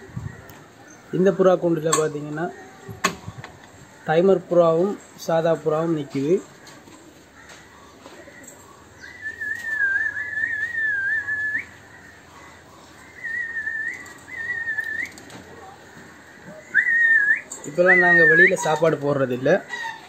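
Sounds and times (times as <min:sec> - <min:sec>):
person whistling a tune: 0:09.2 - 0:11.6.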